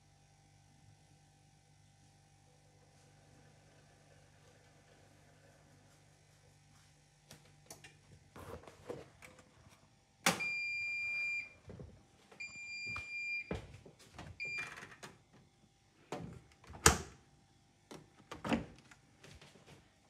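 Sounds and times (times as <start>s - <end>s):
washing machine beeps: 10.3s - 11.6s, 12.4s - 13.7s, 14.4s - 14.8s.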